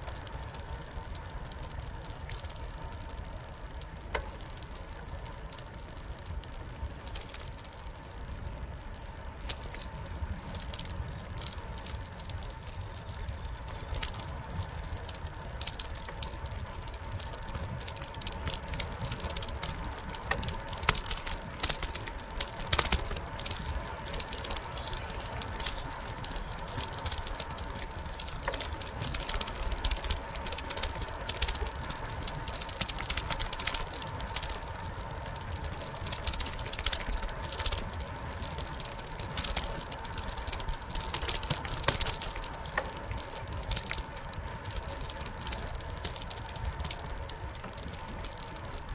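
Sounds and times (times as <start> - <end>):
bicycle rattles and clicks: 0.0 - 48.9
bicycle tyres rumbling on concrete: 0.0 - 48.9
faint steady whine: 0.0 - 48.9.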